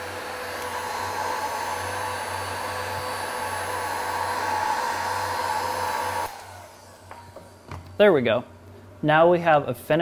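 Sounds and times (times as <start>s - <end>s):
heat gun blowing air: 0.0s - 7.7s
faint motor whine: 0.0s - 10.0s.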